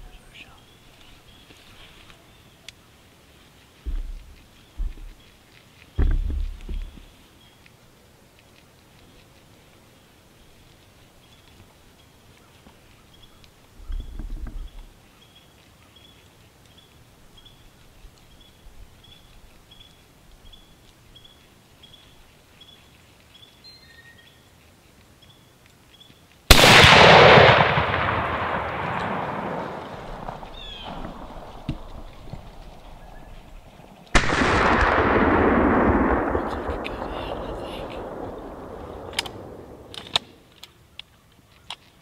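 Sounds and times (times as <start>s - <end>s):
rifle shots echoing: 26.5s - 40.4s.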